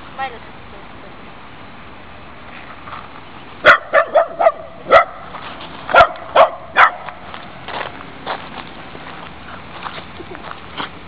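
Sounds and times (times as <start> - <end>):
dog barking: 3.6 - 5.2, 5.9 - 7.1.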